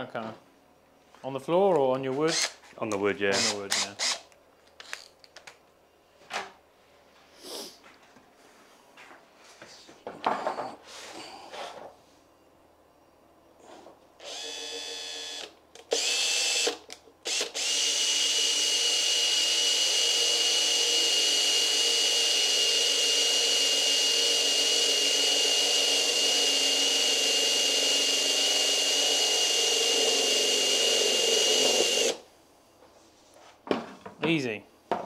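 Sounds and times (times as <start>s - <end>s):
cordless drill whining: 14.2s - 32.2s.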